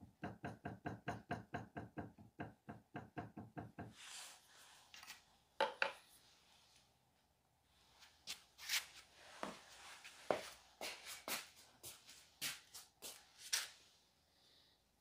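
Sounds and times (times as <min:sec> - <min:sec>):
modelling tool tapping clay: 0:00.0 - 0:04.0.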